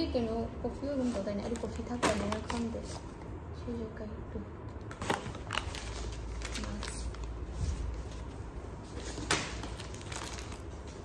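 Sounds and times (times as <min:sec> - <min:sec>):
packets crinkling: 0:01.2 - 0:03.0, 0:04.9 - 0:08.0, 0:08.9 - 0:11.0.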